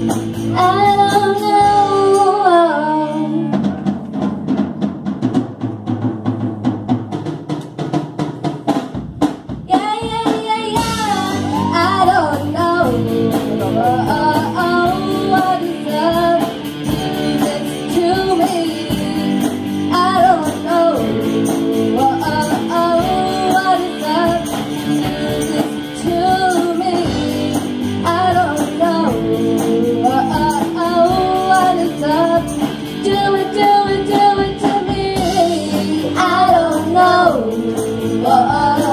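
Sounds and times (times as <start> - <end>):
rock band playing: 0.0 - 38.9
drum hits: 3.6 - 12.2
girls singing: 9.7 - 38.9.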